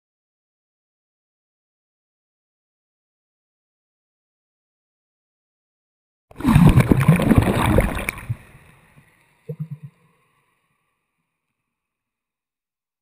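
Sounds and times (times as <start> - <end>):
water splashing and gurgling: 6.3 - 10.0.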